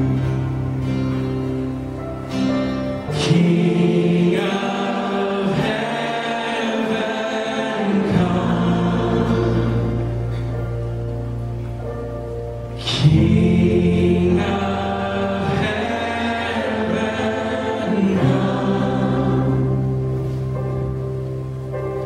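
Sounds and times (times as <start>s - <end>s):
acoustic guitars: 0.0s - 22.0s
bass notes: 0.0s - 22.0s
voices singing together: 3.1s - 10.5s, 12.8s - 20.3s.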